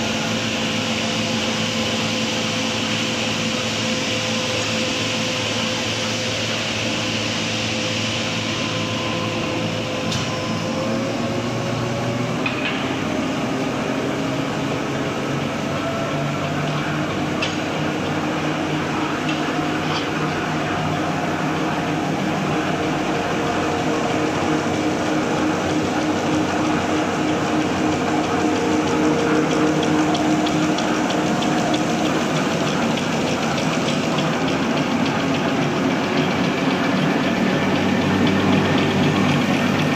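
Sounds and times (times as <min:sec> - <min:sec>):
folding machine humming: 0:08.1 - 0:39.9.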